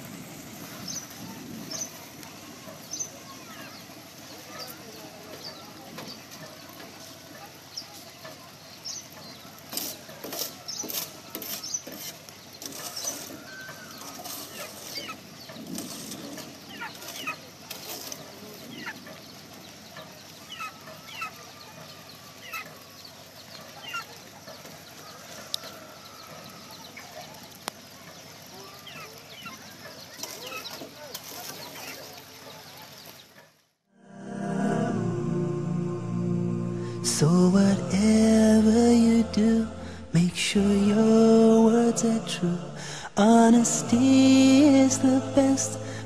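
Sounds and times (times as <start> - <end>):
chickens clucking: 1.7 - 33.4.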